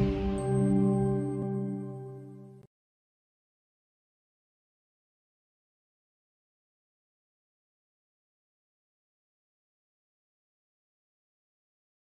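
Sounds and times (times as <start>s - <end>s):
sustained music chord: 0.0s - 2.6s.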